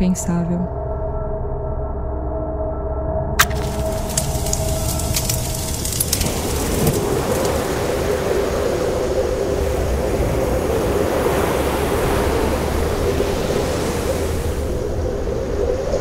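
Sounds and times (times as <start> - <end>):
constant hum: 3.4 - 16.0
rushing wind: 3.4 - 16.0
ocean surf: 3.6 - 16.0.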